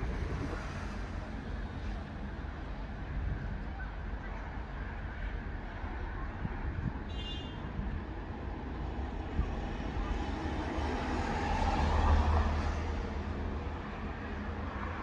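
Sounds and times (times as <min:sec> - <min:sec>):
wind buffeting microphone: 0:00.0 - 0:01.9, 0:06.3 - 0:10.5
road traffic passing: 0:00.0 - 0:15.0.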